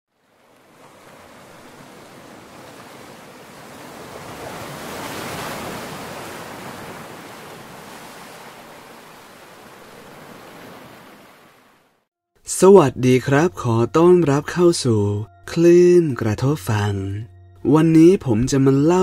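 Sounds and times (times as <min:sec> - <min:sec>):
ocean waves washing in: 0:00.1 - 0:12.1.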